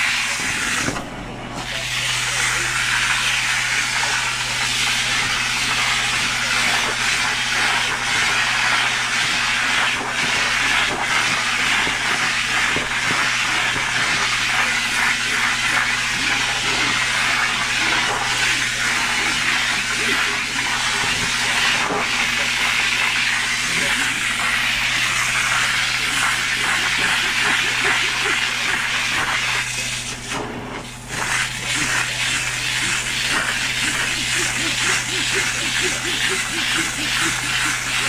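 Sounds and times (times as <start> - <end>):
low motor hum: 0.0 - 38.0.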